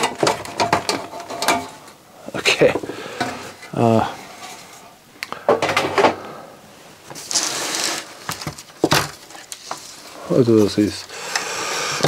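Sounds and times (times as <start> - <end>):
metal cover knocking and clanking: 0.0 - 1.8
metal cover sliding scrape: 7.2 - 8.1.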